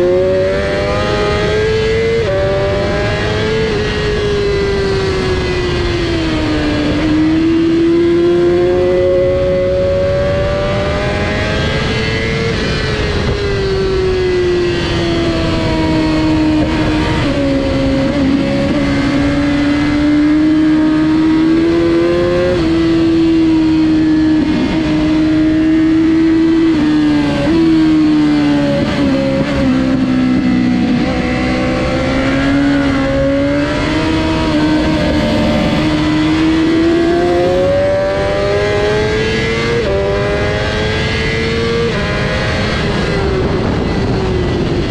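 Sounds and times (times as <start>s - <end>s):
motorcycle engine racing: 0.0s - 44.9s.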